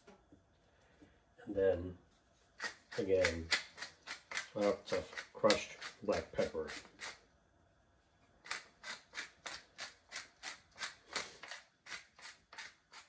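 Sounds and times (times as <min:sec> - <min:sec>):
pepper mill grinding: 0:02.6 - 0:07.2, 0:08.4 - 0:13.0.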